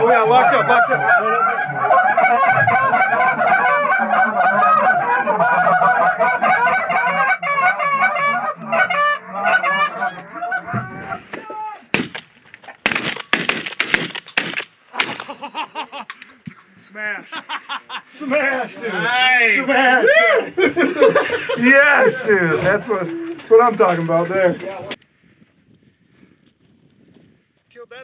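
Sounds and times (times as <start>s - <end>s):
goose calls honking: 0.0s - 11.2s
shotgun blasts: 11.9s - 15.3s.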